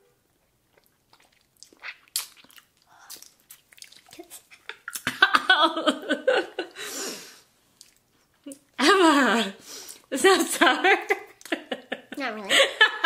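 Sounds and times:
wet mouth clicks and smacks: 0.7s - 5.2s.

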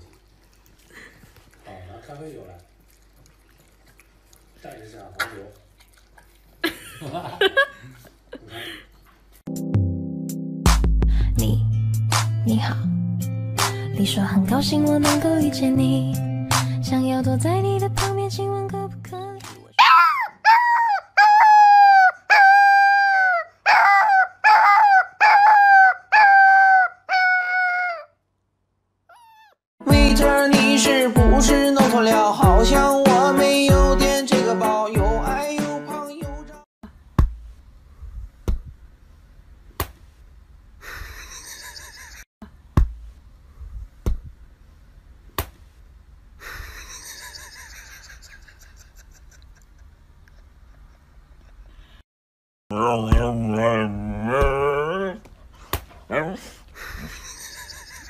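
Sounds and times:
puppy howling: 19.8s - 28.1s, 29.1s - 29.6s, 53.4s - 55.2s.

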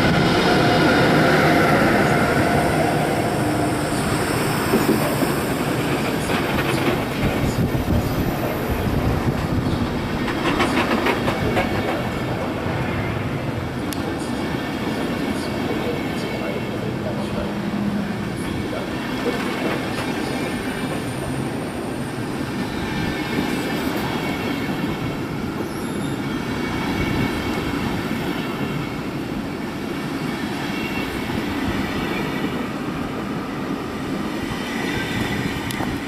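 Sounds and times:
train wheels rumbling on rails: 0.0s - 36.0s
faint wheel squeal: 25.6s - 26.4s.

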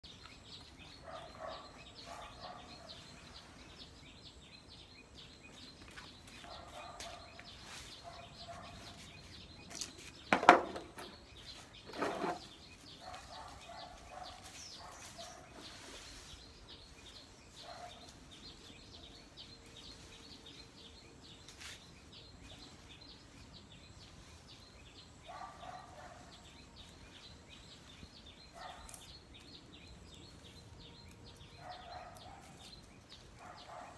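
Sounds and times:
birds calling: 0.0s - 33.9s.

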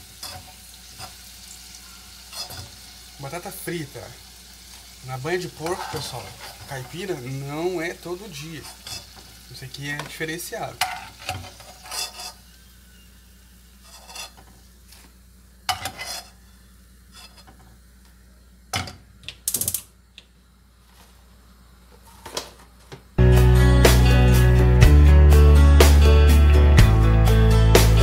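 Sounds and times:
metal utensils scraping cooking pot: 0.2s - 1.2s, 2.2s - 2.8s, 5.6s - 7.3s, 8.4s - 9.2s, 10.8s - 12.5s, 13.8s - 14.5s, 15.7s - 16.4s, 17.1s - 17.6s
music: 23.2s - 28.0s.

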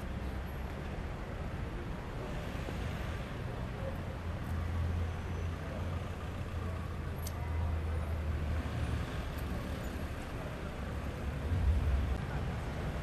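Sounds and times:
low outdoor rumble: 9.0s - 13.0s.

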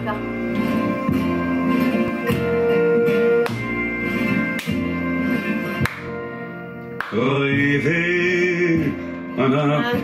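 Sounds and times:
instrumental chanson music: 0.0s - 10.0s.

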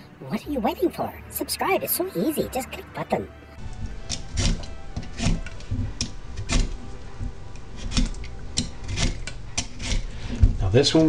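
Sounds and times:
vegetable peeler scraping squash: 3.8s - 10.4s.

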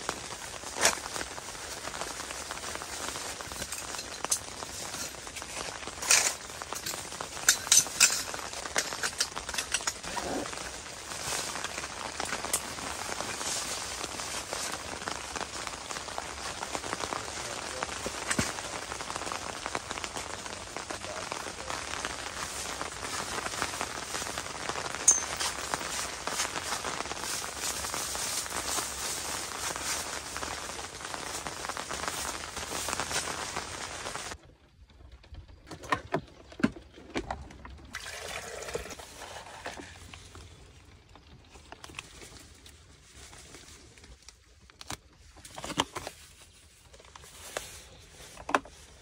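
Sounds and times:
bags rustling: 0.0s - 17.0s, 17.9s - 34.4s
rain pattering on tent: 0.0s - 49.0s.

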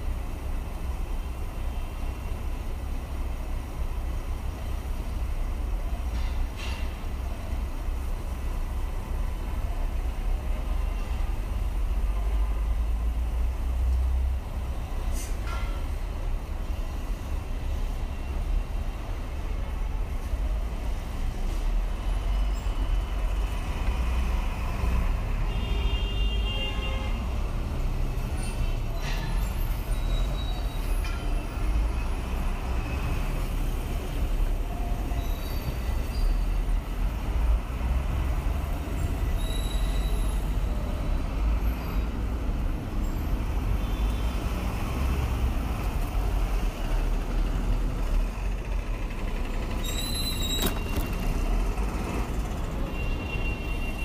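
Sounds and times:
traffic rumble: 0.0s - 54.0s
brief high squeal: 28.4s - 31.0s, 35.1s - 36.4s, 39.4s - 40.5s, 49.8s - 51.0s.

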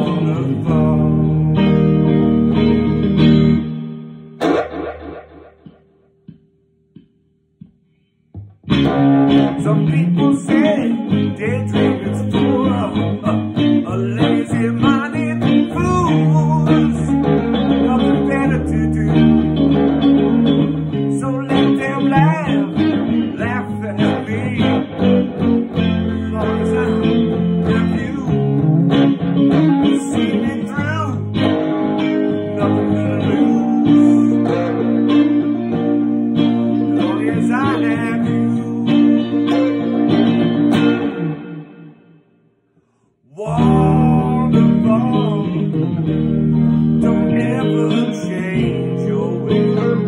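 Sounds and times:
man singing: 0.0s - 2.5s, 9.3s - 40.4s, 43.2s - 50.0s
electric guitar: 0.0s - 50.0s
low bass notes: 0.6s - 7.7s.

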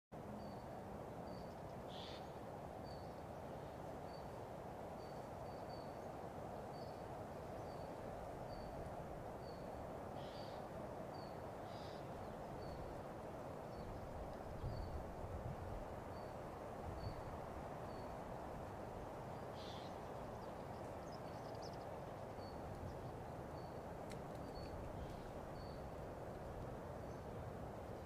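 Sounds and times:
small bird high call: 1.9s - 2.4s, 10.2s - 10.6s, 19.5s - 20.0s.

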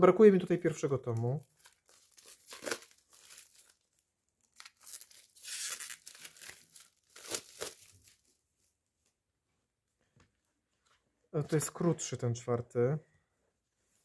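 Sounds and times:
plastic shrink-wrap tearing: 1.4s - 8.3s.

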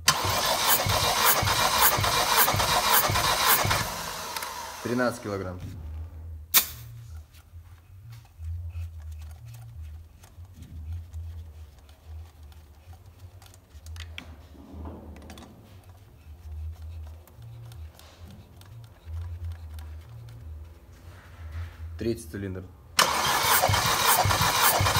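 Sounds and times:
sharp loud snap: 6.5s - 7.0s.

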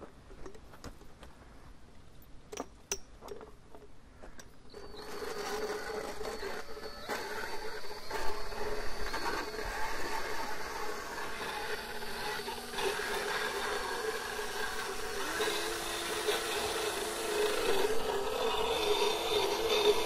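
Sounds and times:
dental float whining and grinding: 4.7s - 20.0s.

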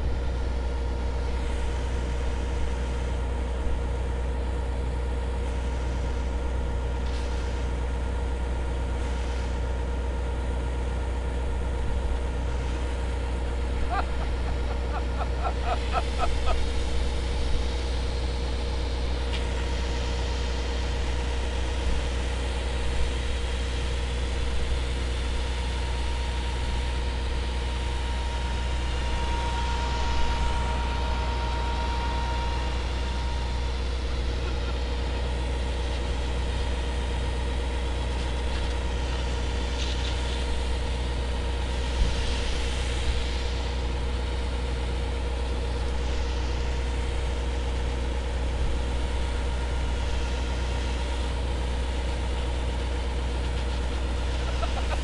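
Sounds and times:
engine humming: 10.4s - 55.0s
high-pressure hose spraying water: 13.8s - 24.2s, 27.0s - 55.0s.

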